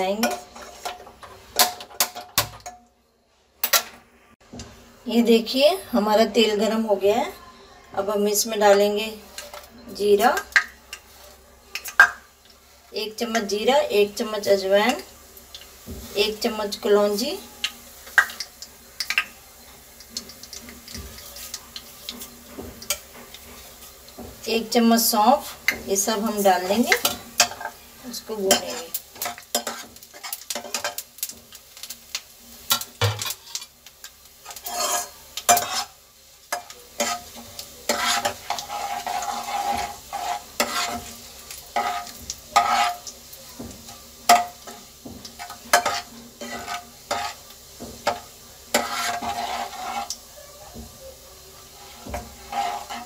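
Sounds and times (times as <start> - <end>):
spices sizzling in hot oil: 0.0 - 53.0
ladle scraping a metal pan: 34.4 - 41.2, 41.8 - 43.1, 45.4 - 47.4, 48.0 - 50.2, 51.8 - 53.0.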